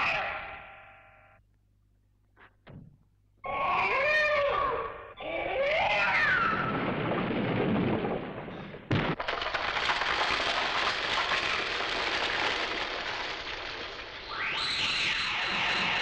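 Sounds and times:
dense crackling explosions: 6.1s - 16.0s
sudden crash: 6.5s - 9.4s.

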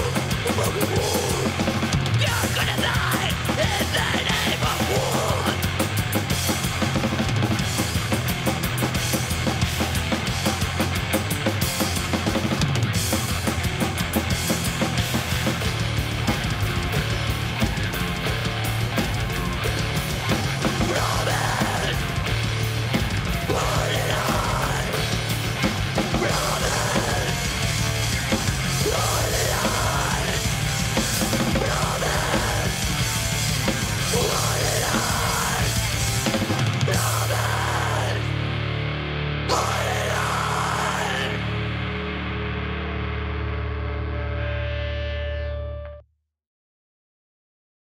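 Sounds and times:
harsh screamed vocal: 0.0s - 5.8s, 20.2s - 38.5s, 39.4s - 41.9s
fast metal drums: 0.0s - 38.5s, 39.5s - 41.8s
distorted electric guitars: 0.0s - 46.0s.

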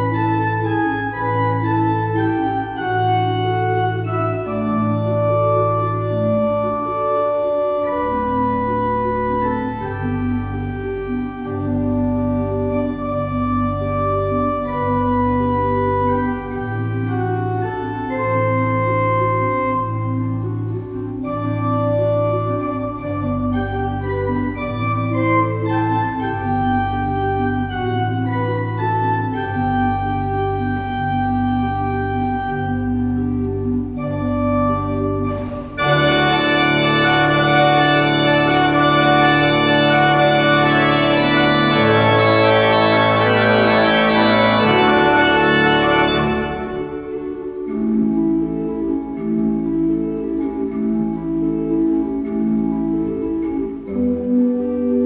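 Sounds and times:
church pipe organ playing: 0.0s - 55.0s.

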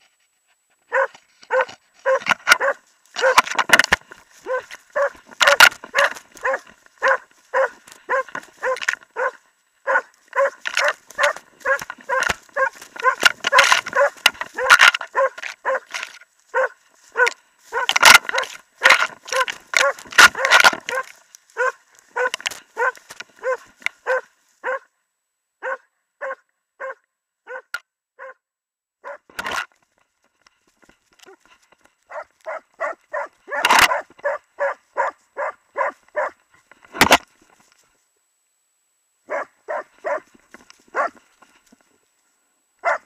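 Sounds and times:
dog barking: 0.9s - 3.5s, 4.4s - 24.9s, 25.6s - 28.4s, 29.0s - 29.3s, 32.1s - 36.4s, 39.3s - 41.2s, 42.8s - 43.0s.

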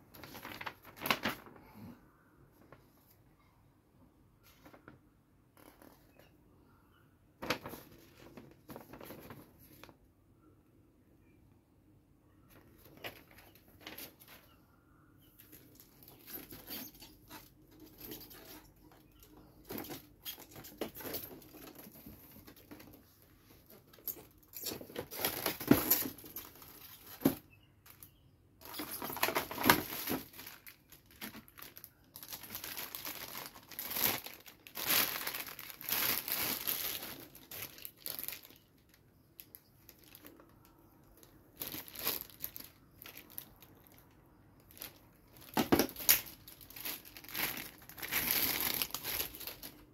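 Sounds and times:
plastic packaging crinkling: 0.1s - 1.6s, 15.4s - 49.9s.

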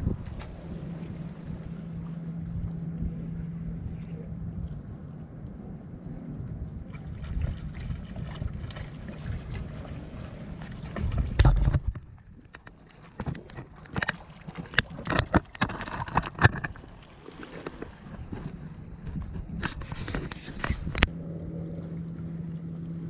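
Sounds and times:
wind on microphone: 0.0s - 13.8s, 14.7s - 22.0s.

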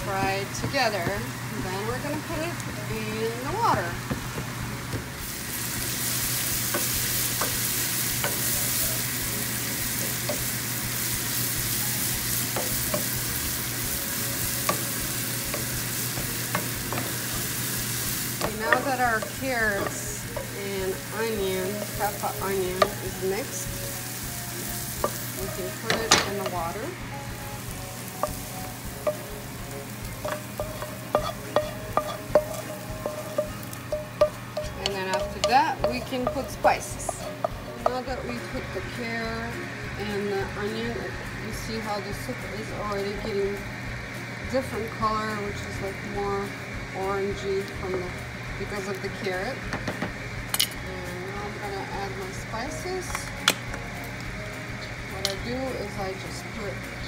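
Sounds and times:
frying and bubbling hiss: 0.0s - 57.0s
vegetables sizzling in oil: 0.0s - 57.0s
wooden spoon knocking on pan: 3.6s - 5.1s, 14.4s - 23.7s, 24.9s - 27.0s, 27.6s - 38.2s
wooden spoon knocking and scraping: 18.4s - 21.0s, 30.1s - 38.0s.

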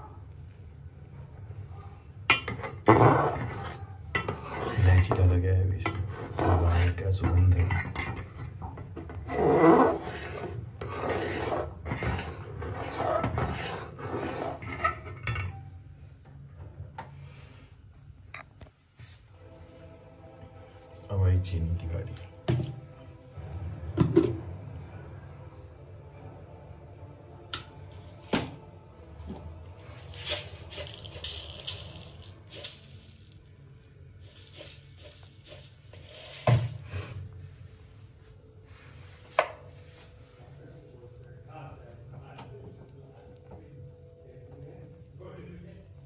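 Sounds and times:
metal ladle scraping pot: 2.3s - 15.6s
low steady hum: 11.7s - 46.0s.

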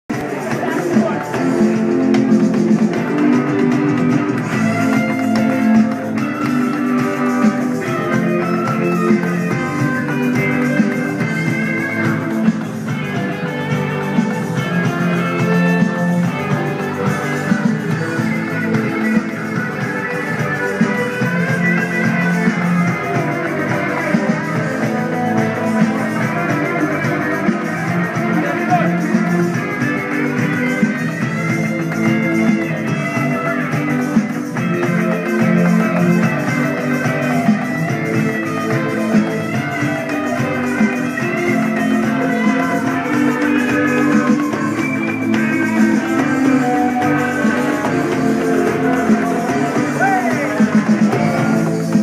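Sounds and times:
guitar: 0.0s - 52.0s
live band playing: 0.1s - 52.0s.

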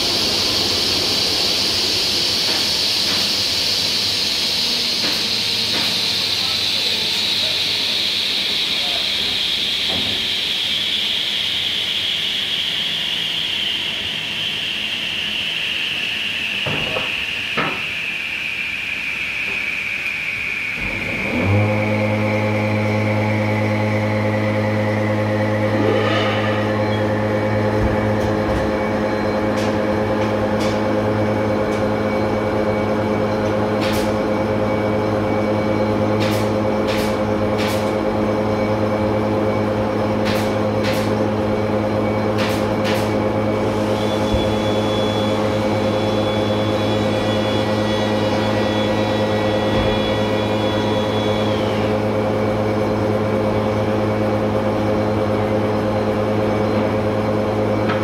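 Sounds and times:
dust extractor running: 0.0s - 58.0s
workshop machinery humming: 0.0s - 58.0s
faint high whine: 6.2s - 21.4s.

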